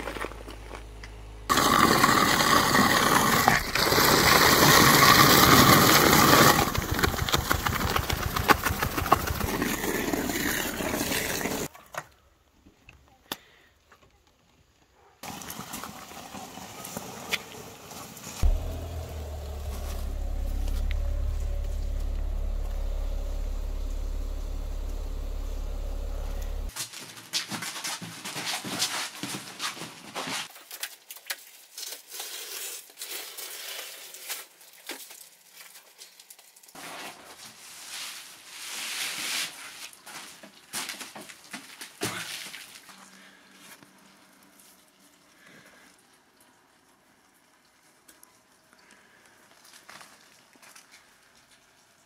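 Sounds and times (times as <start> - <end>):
engine idling: 6.0 - 10.2, 18.4 - 26.7
rustling and crinkling paper: 26.8 - 45.4, 49.2 - 51.7.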